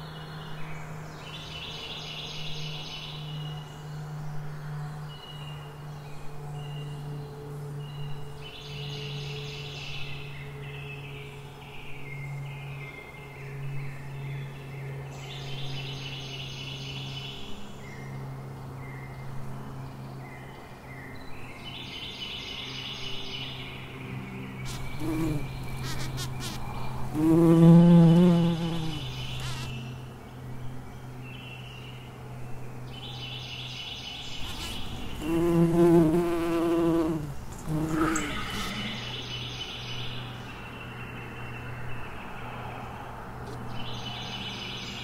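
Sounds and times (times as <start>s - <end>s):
insect wings buzzing: 24.6s - 29.8s, 34.4s - 39.1s.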